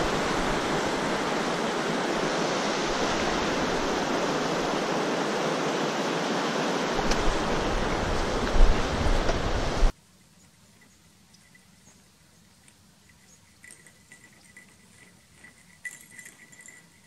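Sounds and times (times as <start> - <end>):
wind buffeting microphone: 0.0 - 5.4, 6.8 - 9.9
running water rushing: 0.0 - 9.9.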